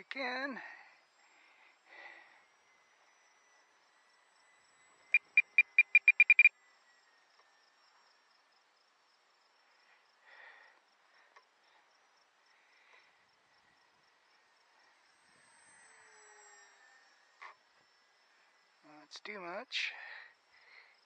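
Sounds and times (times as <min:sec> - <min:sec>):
short high beeps: 0:05.2 - 0:06.5.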